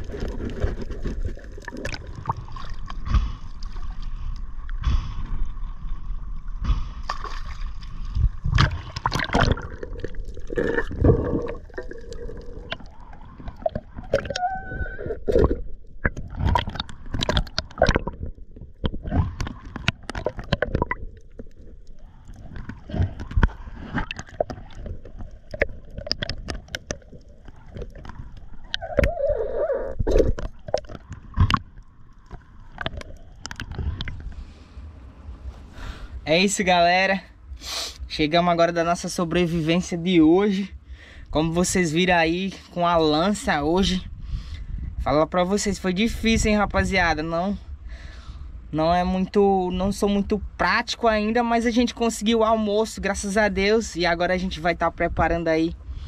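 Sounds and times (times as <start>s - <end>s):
water sloshing and splashing: 0.0s - 34.7s
muffled underwater rumbles: 0.0s - 56.0s
gurgling squeals: 10.5s - 15.7s, 28.6s - 30.4s.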